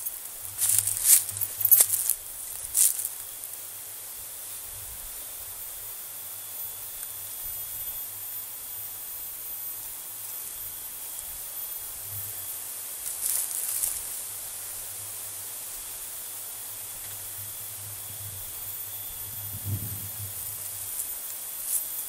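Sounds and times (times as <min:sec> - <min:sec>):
dry leaves rustling: 0:00.0 - 0:05.4, 0:12.8 - 0:22.0
faint thin whine: 0:00.0 - 0:22.0
forest ambience hiss: 0:00.0 - 0:22.0.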